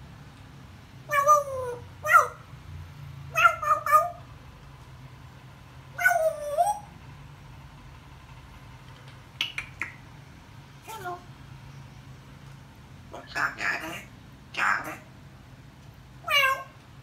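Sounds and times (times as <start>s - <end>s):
parrot calling: 1.1s - 2.5s, 3.3s - 4.3s, 5.9s - 6.9s, 9.4s - 10.1s, 13.1s - 15.2s, 16.2s - 16.8s
parrot chirping: 1.1s - 2.5s, 3.3s - 4.3s, 5.9s - 6.9s, 9.3s - 10.2s, 13.1s - 15.1s, 16.2s - 16.8s.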